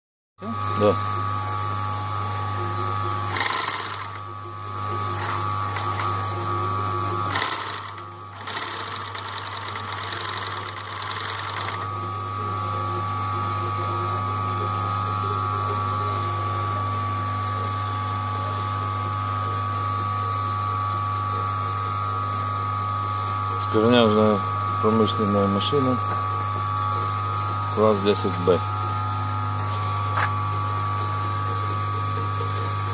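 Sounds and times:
electric motor humming: 0.4 - 32.9
sewing machine needle ticking: 7.3 - 11.8.

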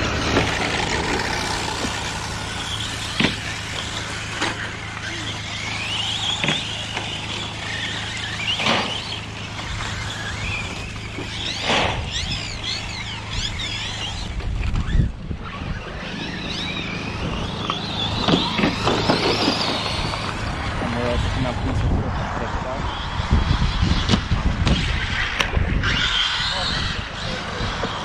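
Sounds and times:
electric motors whining: 0.0 - 28.0
steady low hum: 0.0 - 28.0.

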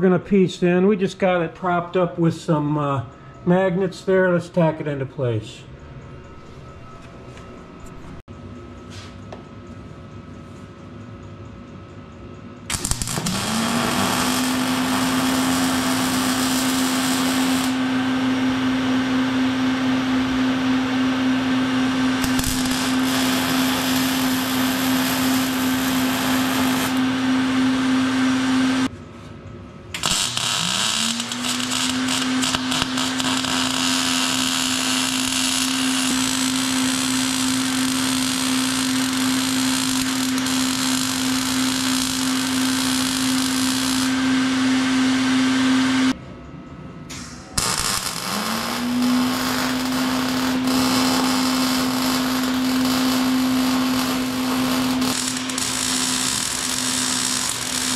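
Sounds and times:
electric power tool running: 12.7 - 28.9, 30.0 - 46.2, 47.6 - 57.9.

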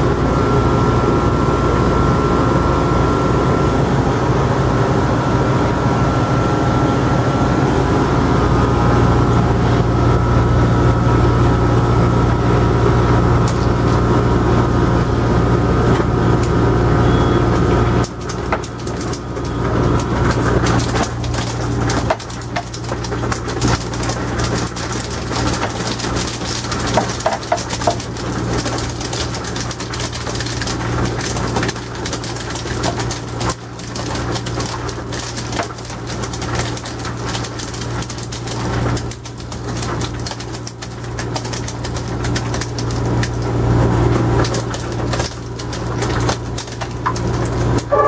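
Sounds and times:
ice machine humming: 0.0 - 48.0
crackling clicking clatter: 13.4 - 14.0, 17.5 - 48.0.

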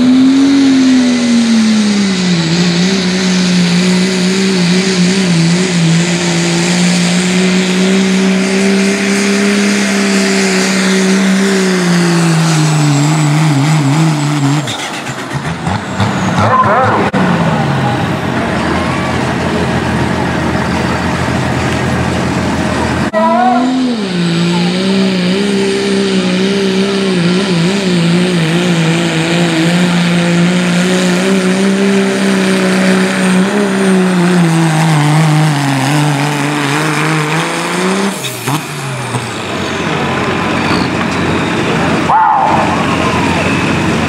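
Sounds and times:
diesel pickup engine revving under load: 0.0 - 44.0.

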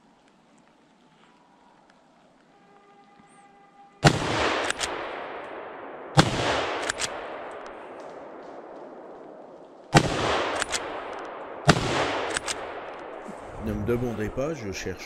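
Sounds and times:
rifle shots echoing: 4.0 - 14.9.

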